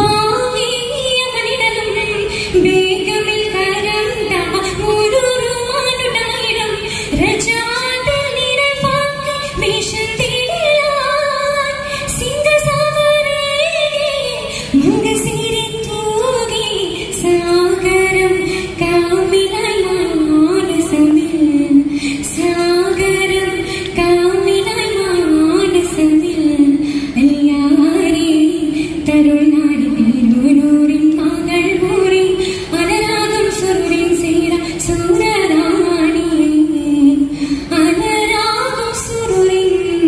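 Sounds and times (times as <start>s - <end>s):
girl singing into microphone: 0.0s - 40.0s.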